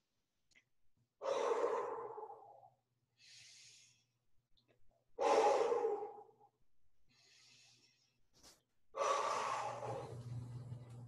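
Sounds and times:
woman breathing deeply: 0:05.2 - 0:06.2, 0:09.0 - 0:10.4.

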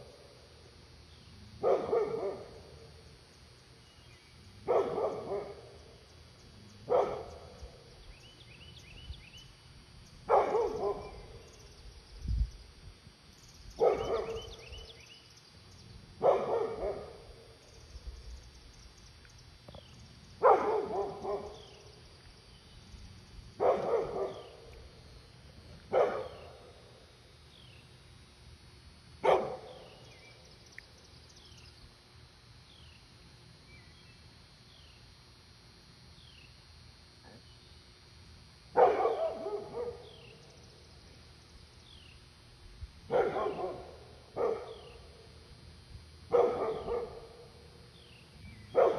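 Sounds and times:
dog barking with echo: 0:01.6 - 0:02.6, 0:04.6 - 0:05.7, 0:06.9 - 0:07.5, 0:10.3 - 0:11.3, 0:13.8 - 0:14.5, 0:16.2 - 0:17.3, 0:20.4 - 0:21.6, 0:23.6 - 0:24.6, 0:25.9 - 0:26.6, 0:29.2 - 0:29.8, 0:38.8 - 0:40.1, 0:43.1 - 0:44.9, 0:46.3 - 0:47.5.

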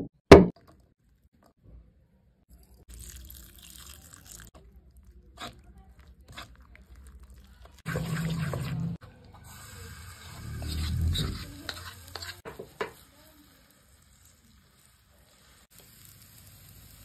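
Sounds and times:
spoon stirring wet mixture in bowl: 0:02.5 - 0:09.6, 0:10.4 - 0:13.0.

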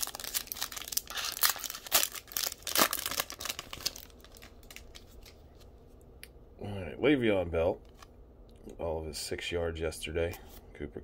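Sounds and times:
foil wrapper crinkling and tearing: 0:00.0 - 0:05.4.

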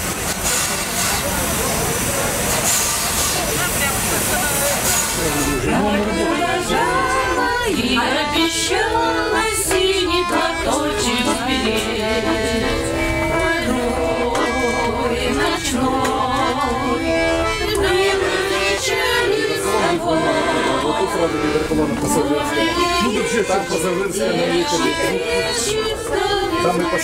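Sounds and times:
button accordion playing chords: 0:04.6 - 0:27.0
woman singing: 0:05.7 - 0:21.0, 0:24.1 - 0:26.6.

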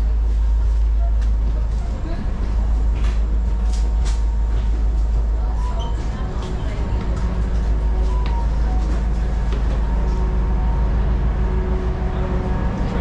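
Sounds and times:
ferry engines droning: 0:00.0 - 0:13.0.

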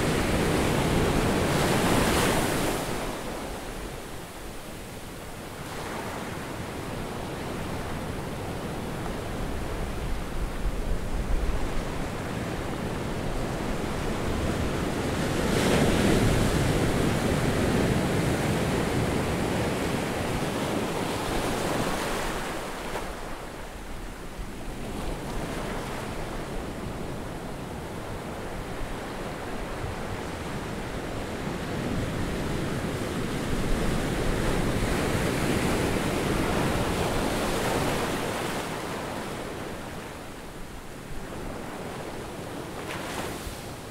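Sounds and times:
wind: 0:00.0 - 0:43.9
waves breaking on beach: 0:32.1 - 0:43.9.

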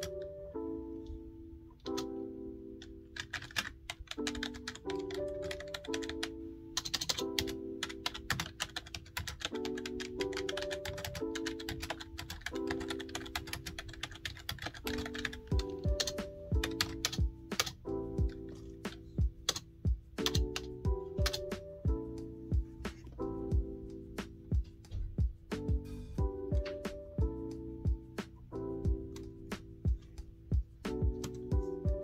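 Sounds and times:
background music with melody: 0:00.0 - 0:32.0
fast typing on keyboard: 0:02.8 - 0:21.6
steady low beat: 0:16.6 - 0:32.0.

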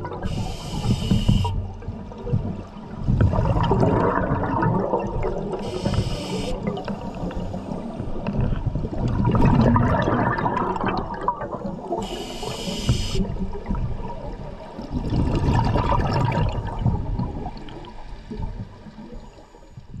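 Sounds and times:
exhaled bubbles gurgling underwater: 0:00.0 - 0:20.0
regulator inhale hiss: 0:00.3 - 0:01.6, 0:05.6 - 0:07.8, 0:12.0 - 0:13.2.

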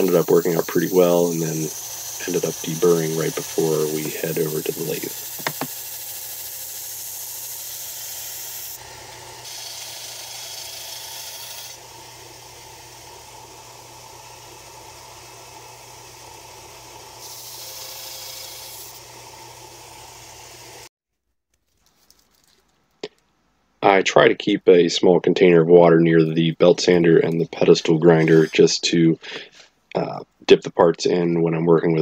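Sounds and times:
belt sander grinding metal: 0:00.0 - 0:20.9, 0:27.6 - 0:28.8.

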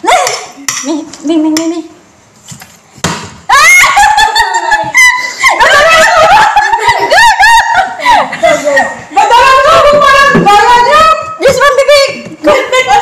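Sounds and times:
women shrieking and laughing: 0:03.5 - 0:13.0.

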